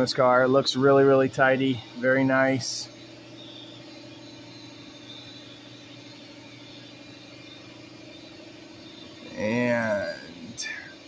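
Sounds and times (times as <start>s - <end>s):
air compressor humming: 0.0s - 11.0s.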